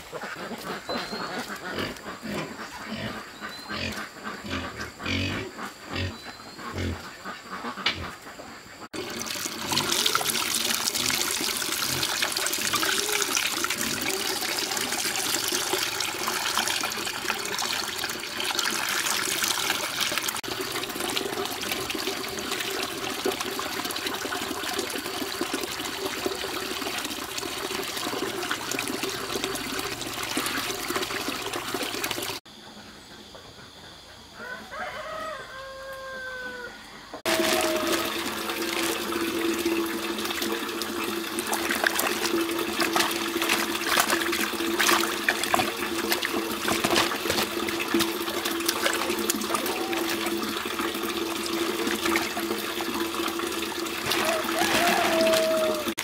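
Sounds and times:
tap water pouring into basin: 8.9s - 32.4s, 37.2s - 56.0s
hands splashing fish in water: 41.6s - 50.4s, 54.0s - 55.9s.

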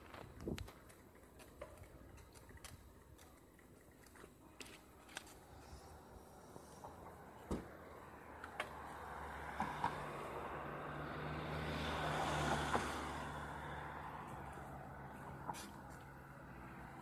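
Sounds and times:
car driving past: 6.8s - 17.0s.

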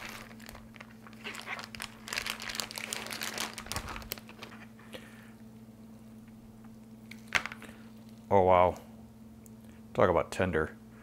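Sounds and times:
plastic bag crinkling: 0.0s - 4.8s.

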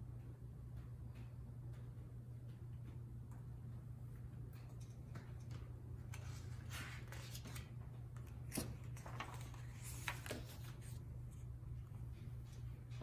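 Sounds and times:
steady low hum: 0.0s - 13.0s
page turning rustle: 6.1s - 11.5s.

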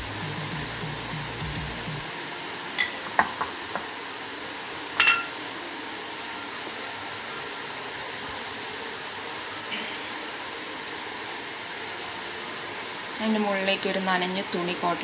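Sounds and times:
steady hiss: 0.0s - 15.0s
clinks against glass bowl: 2.8s - 3.4s, 5.0s - 5.4s.

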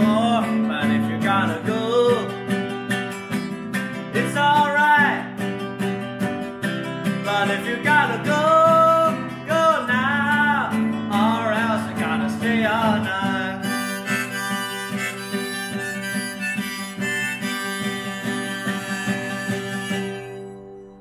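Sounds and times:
classical guitar strummed: 0.0s - 21.0s
harmonica playing: 7.0s - 9.1s, 12.7s - 21.0s.

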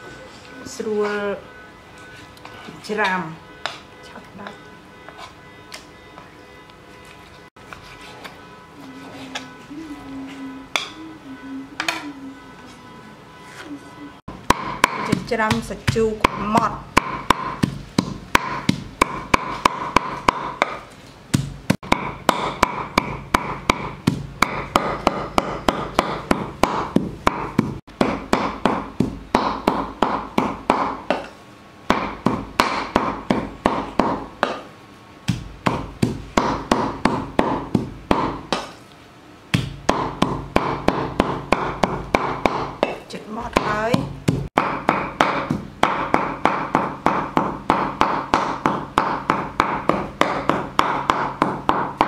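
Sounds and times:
cleaver chopping meat on wooden board: 14.3s - 31.3s, 31.9s - 34.7s, 35.3s - 38.8s, 39.5s - 52.0s.

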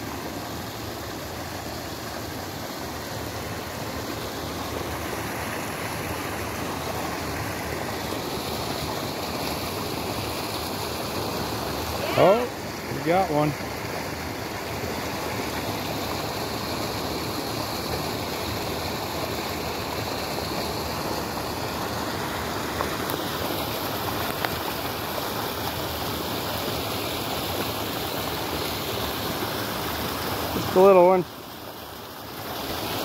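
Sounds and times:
stream water rushing: 0.0s - 33.0s.

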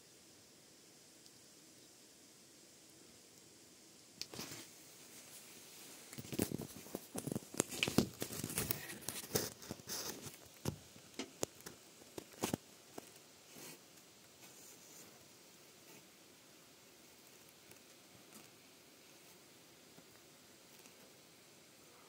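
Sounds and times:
crinkly rustling: 4.2s - 16.1s.

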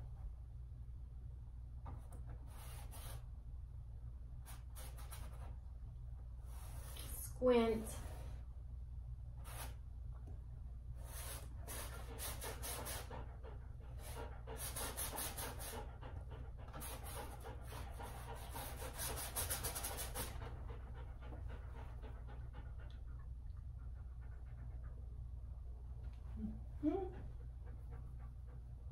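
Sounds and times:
steady low hum: 0.0s - 28.9s
paintbrush scrubbing on canvas: 2.5s - 3.2s, 9.4s - 9.8s, 11.1s - 13.1s, 14.0s - 15.9s, 16.8s - 20.5s.

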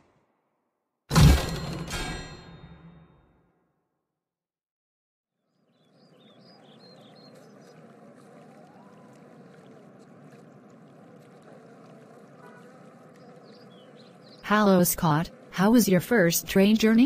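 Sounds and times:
faint bird chirps: 5.4s - 14.6s
stream water flowing: 5.7s - 17.0s.

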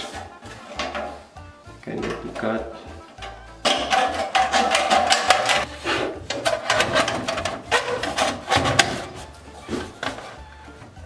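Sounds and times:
sheet metal crinkling and ringing: 2.0s - 10.4s.

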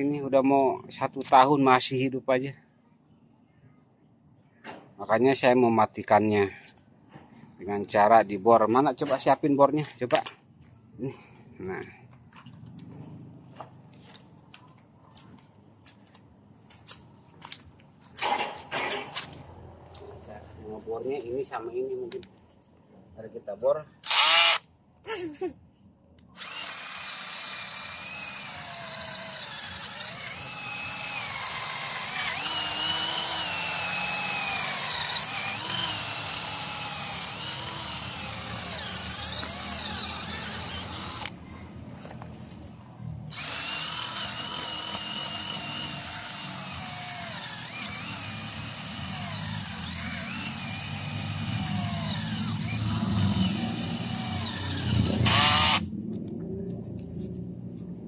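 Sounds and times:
cordless drill boring into wood: 24.0s - 24.7s, 26.4s - 41.4s, 43.3s - 55.9s.

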